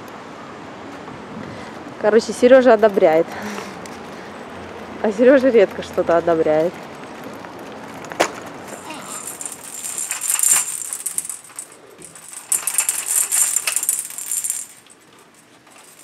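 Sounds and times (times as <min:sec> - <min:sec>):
baby rattle jingling: 0:08.7 - 0:16.0.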